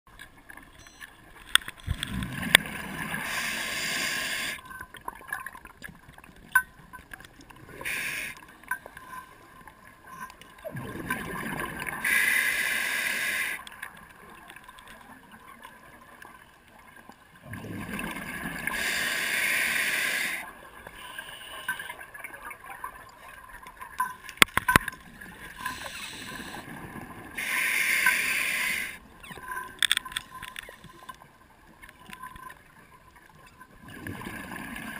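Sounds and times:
bubbles rushing and gurgling: 0:01.8 - 0:12.1, 0:17.4 - 0:19.0, 0:33.6 - 0:34.9
diver breathing through regulator: 0:03.1 - 0:04.6, 0:07.7 - 0:08.4, 0:12.0 - 0:13.6, 0:18.6 - 0:22.0, 0:25.5 - 0:26.7, 0:27.4 - 0:29.0
sharp clicks: 0:29.3 - 0:31.2.

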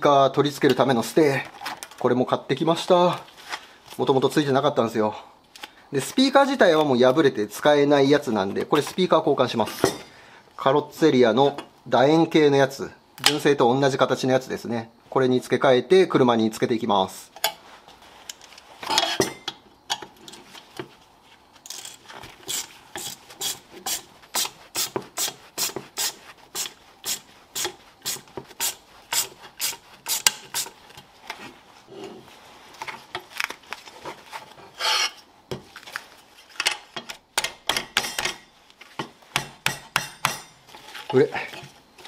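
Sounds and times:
hand tool rasping and scraping: 0:21.7 - 0:30.7, 0:34.7 - 0:35.2.

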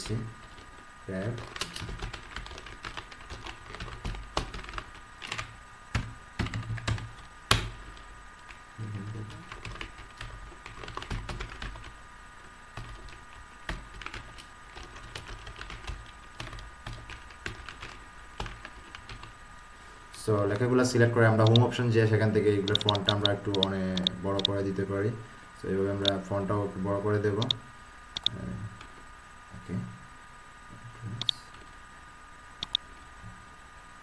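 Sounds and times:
computer keyboard typing: 0:00.0 - 0:08.1, 0:09.1 - 0:12.0, 0:12.8 - 0:19.3, 0:21.4 - 0:21.7, 0:22.6 - 0:24.6
faint steady hum: 0:00.0 - 0:34.0.

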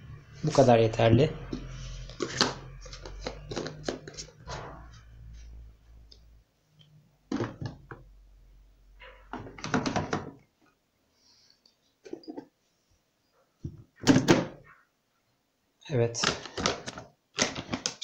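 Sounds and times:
plastic bottles knocking: 0:01.5 - 0:04.3, 0:07.3 - 0:08.0, 0:09.3 - 0:10.4.

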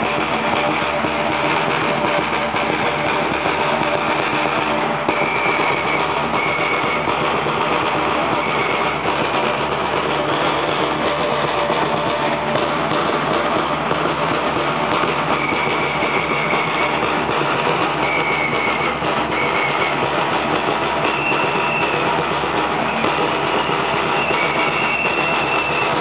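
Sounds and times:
dense drumming: 0:00.0 - 0:26.0
high whistle notes: 0:05.1 - 0:07.4, 0:08.1 - 0:09.7, 0:15.2 - 0:17.2, 0:17.9 - 0:20.2, 0:20.9 - 0:22.2, 0:22.8 - 0:26.0.

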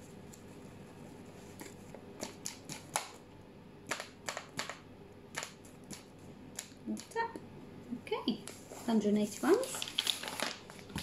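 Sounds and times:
paper bag crinkling: 0:08.8 - 0:11.0.

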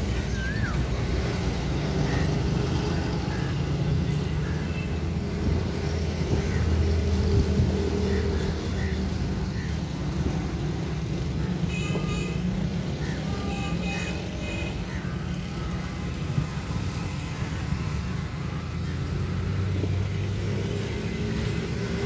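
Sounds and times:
vehicle engines humming: 0:00.0 - 0:22.0.

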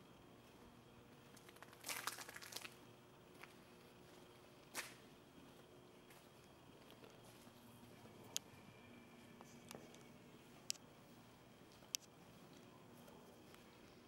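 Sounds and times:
faint steady hum: 0:00.0 - 0:14.0
crackling crinkly rustle: 0:01.3 - 0:02.8.

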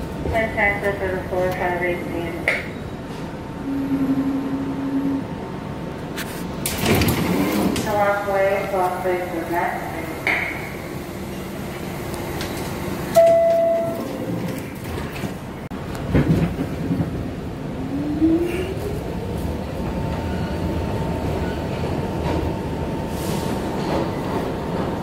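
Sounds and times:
subway train running noise: 0:00.0 - 0:25.0
short steady tone: 0:03.6 - 0:05.3
train clunk: 0:10.2 - 0:17.2, 0:21.3 - 0:25.0.

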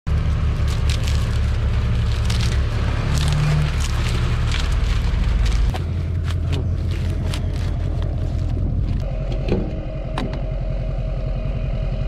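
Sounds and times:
heavy machine engine running: 0:00.1 - 0:12.0
sharp clanks and crackles: 0:00.4 - 0:09.1.

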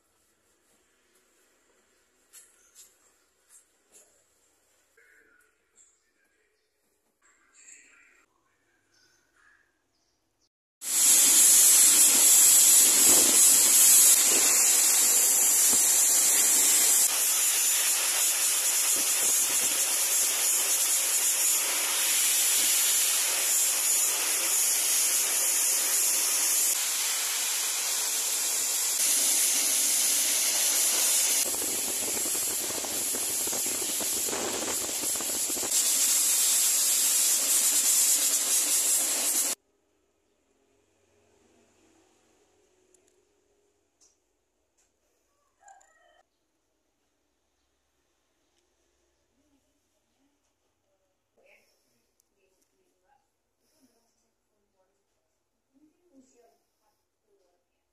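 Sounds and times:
blow dryer hissing rush: 0:10.8 - 0:39.6.

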